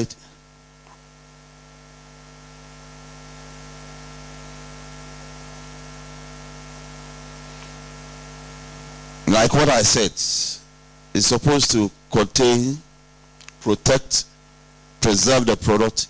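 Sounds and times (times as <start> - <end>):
electrical mains hum: 0.0 - 16.0
sound system hiss: 2.3 - 14.4.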